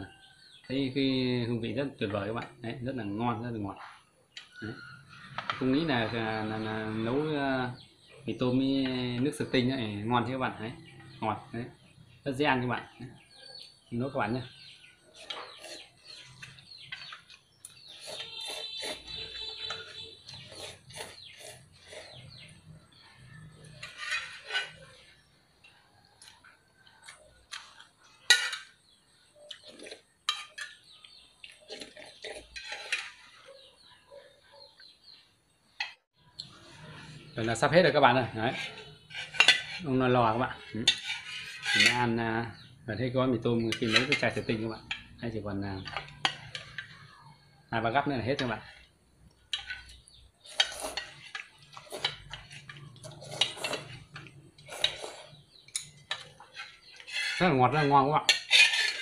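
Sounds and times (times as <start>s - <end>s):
utensil scraping metal pot: 14.6s - 25.3s, 28.1s - 29.0s, 29.6s - 33.9s, 36.5s - 42.7s, 43.5s - 45.2s, 45.8s - 47.4s, 49.5s - 59.0s
slurping noodles: 53.0s - 55.4s.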